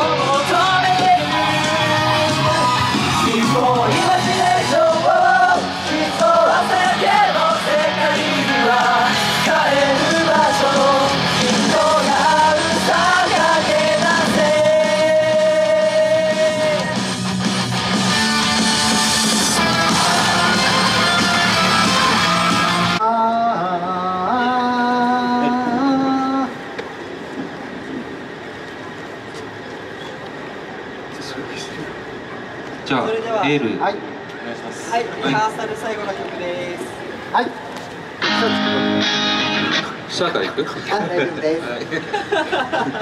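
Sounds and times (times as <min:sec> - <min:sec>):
male group singing pop dance song: 0:00.0 - 0:17.4, 0:19.2 - 0:23.0
backing track: 0:00.0 - 0:27.0, 0:36.9 - 0:40.8.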